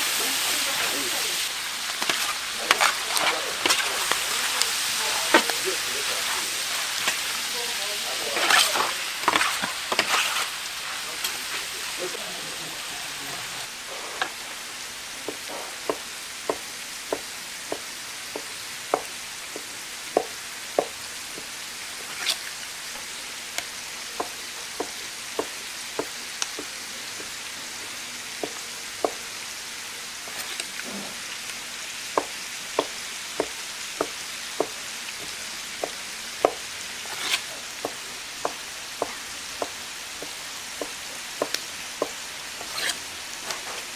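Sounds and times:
meat sizzling on a griddle: 0.0s - 43.9s
stirring and scraping clatter: 1.9s - 11.8s, 37.1s - 43.9s
knife chopping on wooden board: 15.3s - 21.5s, 32.2s - 34.8s, 35.8s - 43.6s.

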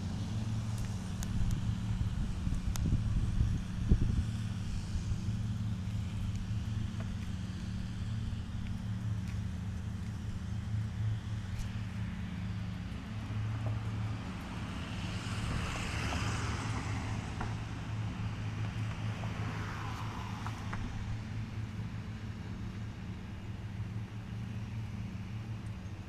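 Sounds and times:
lawn mower engines droning: 0.0s - 26.0s.

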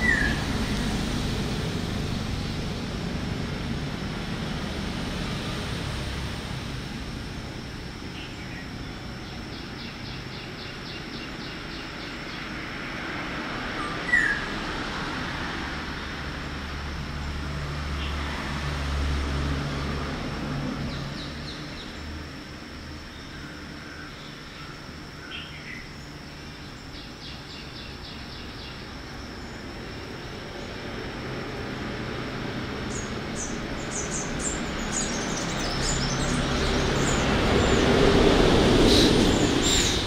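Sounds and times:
steady low rumble: 0.0s - 9.9s.

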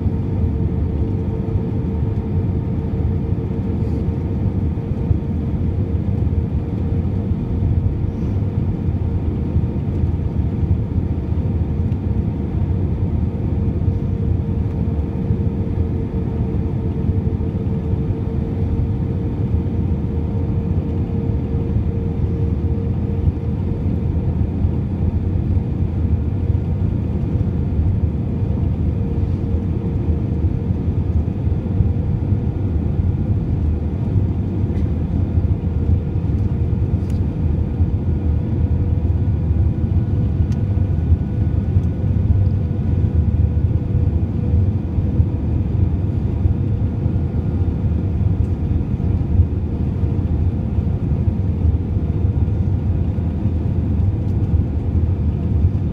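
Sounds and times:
steady hum-like tone: 0.0s - 9.3s
aircraft engine and airflow rumble: 0.0s - 55.9s.

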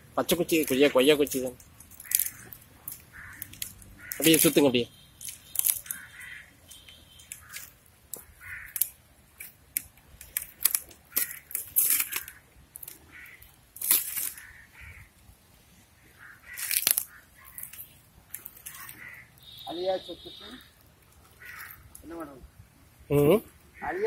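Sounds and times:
dry material crunching: 0.2s - 15.1s, 16.2s - 22.2s
fire crackling and popping: 0.2s - 19.7s, 20.4s - 23.8s
crows cawing: 1.4s - 4.7s, 5.5s - 9.0s, 10.7s - 15.2s, 16.0s - 22.4s, 23.7s - 24.0s.

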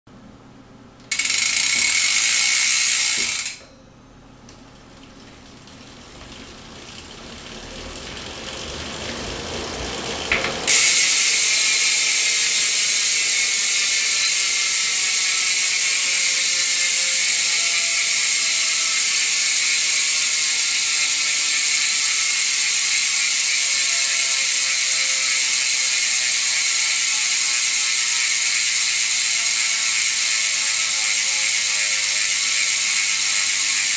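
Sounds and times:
bicycle freehub ratcheting: 1.0s - 3.7s, 5.9s - 33.9s.

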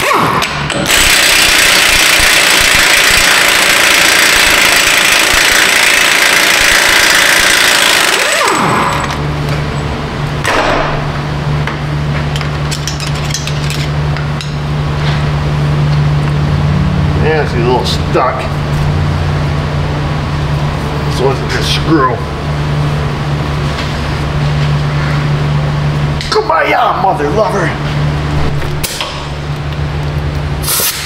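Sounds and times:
power tool whirring: 0.0s - 9.2s
steady low hum: 8.5s - 30.8s.

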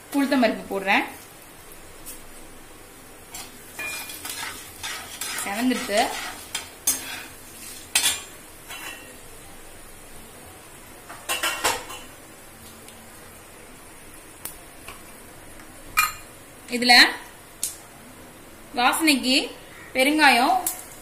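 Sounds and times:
lentils sizzling in oil: 0.0s - 18.0s, 18.7s - 21.0s
metal spatula scraping a pan: 3.3s - 9.1s.

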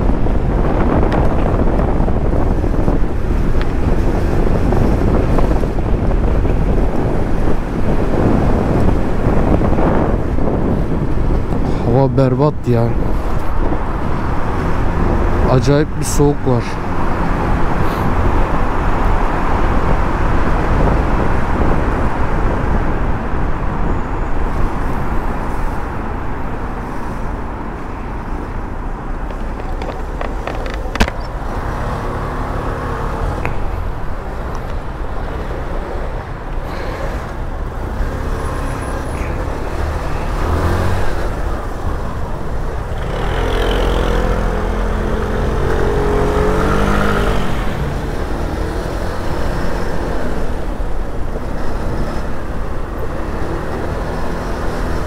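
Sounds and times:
wind rushing over microphone: 0.0s - 55.0s
scooter engine accelerating: 42.8s - 49.2s.

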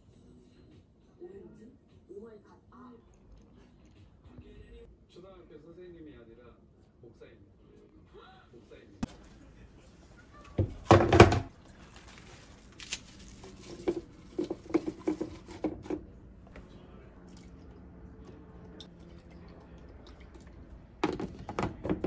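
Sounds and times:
kitchenware clattering: 10.5s - 11.5s, 13.5s - 16.0s
leaves crinkling in plastic cup: 11.5s - 15.6s.

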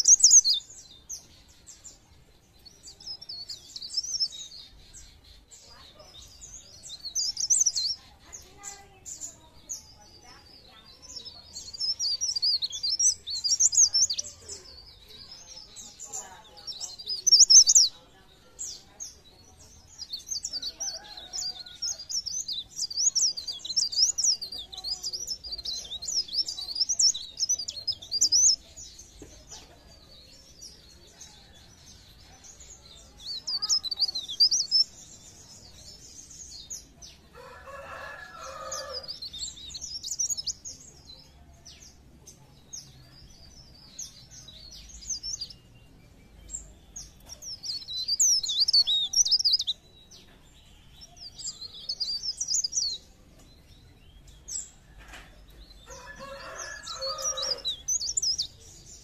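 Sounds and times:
high-pitched bird twittering: 0.0s - 1.0s, 10.9s - 17.9s.

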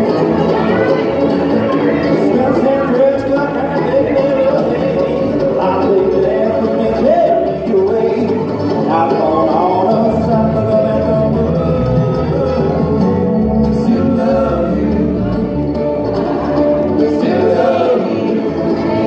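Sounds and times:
live bluegrass band playing: 0.0s - 19.0s.

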